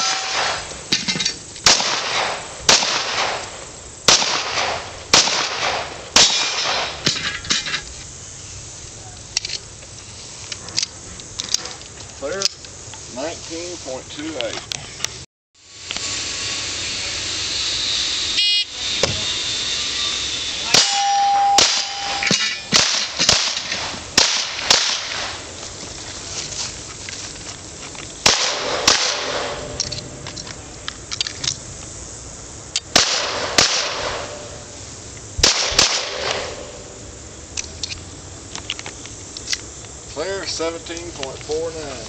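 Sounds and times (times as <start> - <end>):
steel plates clanging: 0.0 - 1.6, 6.2 - 8.0, 20.7 - 23.8
pistol shots: 1.6 - 3.5, 4.1 - 7.0, 21.6 - 25.4, 28.2 - 29.8, 32.9 - 34.4, 35.4 - 36.8
shot timer beep: 18.4 - 18.8, 20.8 - 22.3.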